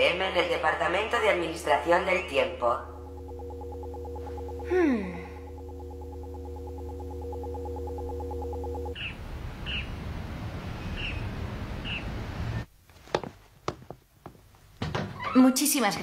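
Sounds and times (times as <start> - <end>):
electronic hum with pulsing tone: 0.3 - 10.8
bird chirps: 8.9 - 9.9, 10.8 - 12.1.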